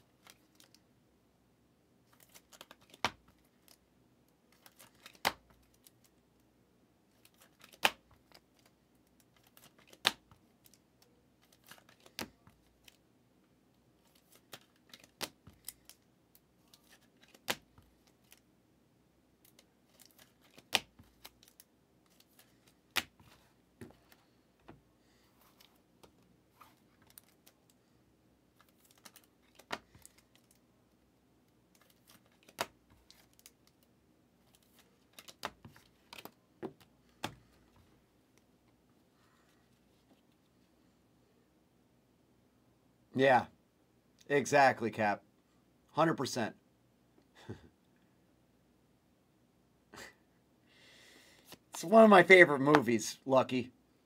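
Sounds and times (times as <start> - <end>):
faint card rustling: 2.1 - 3.8, 4.5 - 6.2, 7.1 - 13.0, 16.6 - 18.4, 19.4 - 30.6, 31.7 - 40.8
cards clicking and tapping: 2.2 - 3.4, 4.6 - 5.9, 7.2 - 8.4, 9.4 - 10.8, 11.4 - 13.0, 14.1 - 16.0, 16.8 - 18.4, 19.5 - 24.8, 28.6 - 30.6, 31.8 - 33.8, 34.5 - 37.5.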